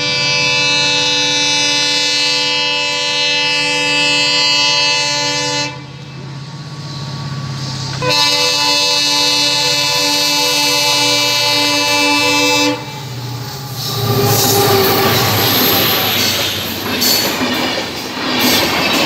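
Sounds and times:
locomotive air horn blast: 0.0 - 6.0, 8.0 - 15.8
rumble of approaching train: 0.0 - 19.0.

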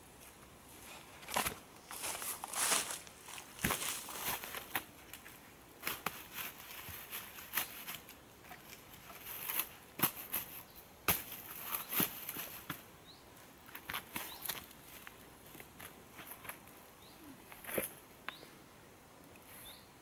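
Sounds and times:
footsteps crunching through dry grass: 0.8 - 12.8.

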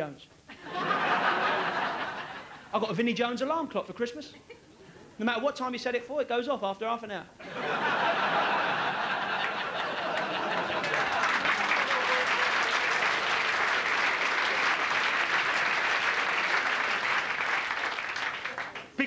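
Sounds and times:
audience laughing: 0.5 - 2.7, 7.4 - 17.9
audience applauding: 8.1 - 19.0.

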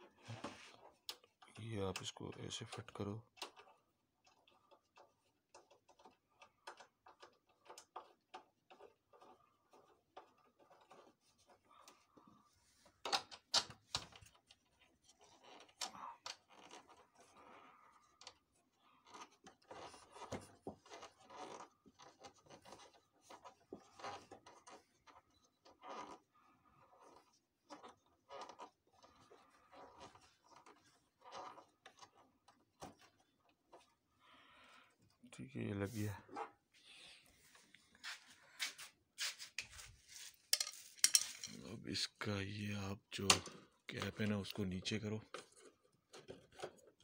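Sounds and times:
plastic and metal parts clicking: 0.2 - 12.0, 12.8 - 17.3.

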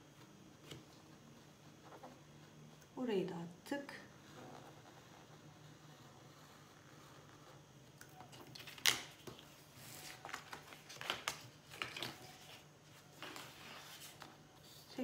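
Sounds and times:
paper rustling and crackling: 8.3 - 15.0.

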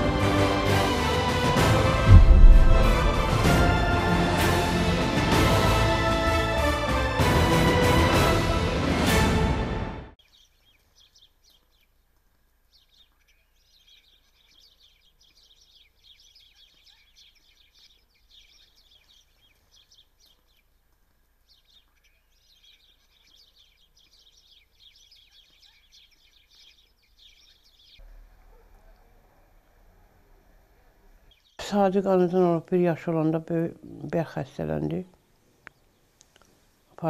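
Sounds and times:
small birds chirping: 10.2 - 37.0.

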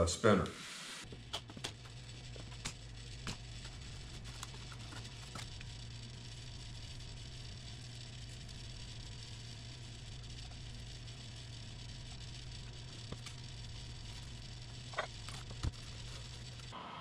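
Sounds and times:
steady low hum: 0.0 - 17.0
faint handling sounds: 1.1 - 5.8, 13.0 - 16.8.

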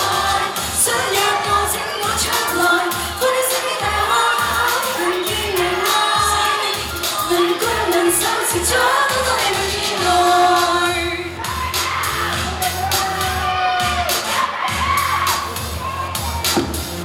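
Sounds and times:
women singing pop song: 0.0 - 12.5
pop backing track with beat: 0.0 - 17.0.

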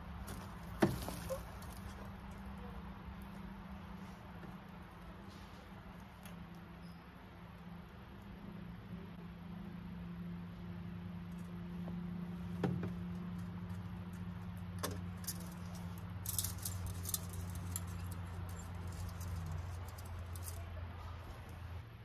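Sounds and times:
light metallic clinks: 13.1 - 20.8.

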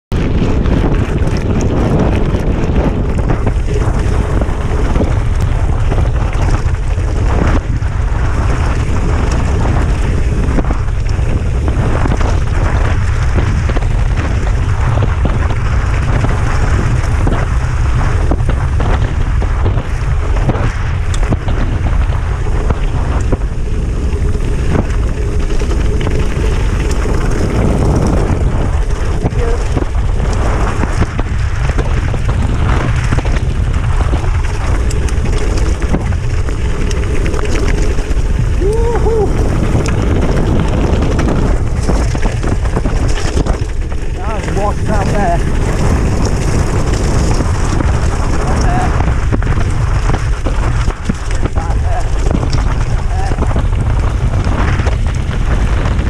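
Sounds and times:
wind buffeting microphone: 0.0 - 56.0
bike rattles and clicks: 0.1 - 56.0
tyres crunching on gravel: 0.3 - 56.0.

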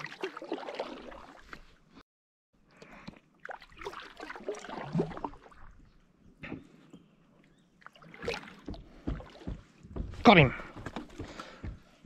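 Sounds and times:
paddle splashing and dripping: 0.0 - 2.0, 2.7 - 5.9, 7.4 - 9.9.

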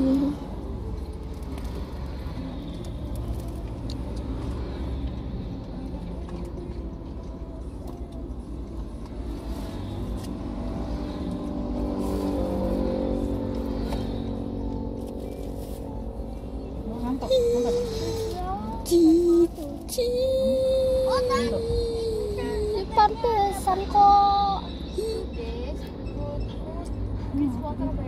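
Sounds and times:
approaching vehicle engine: 0.0 - 28.0
cars and motorcycles passing: 0.0 - 28.0.

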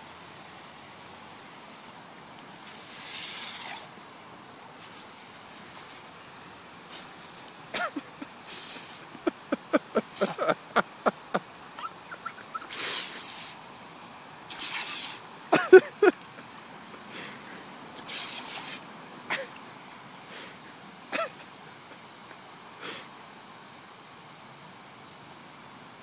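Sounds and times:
squeaky sounds: 11.8 - 12.7
puppy breathy snorts: 12.6 - 13.2.

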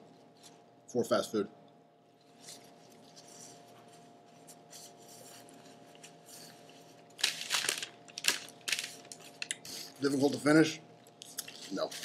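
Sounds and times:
paper napkin rustling: 2.2 - 9.4.

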